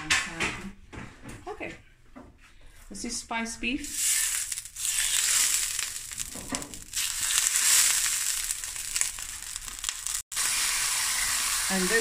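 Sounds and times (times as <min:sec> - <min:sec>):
beef sizzling in hot oil: 0:03.8 - 0:12.0.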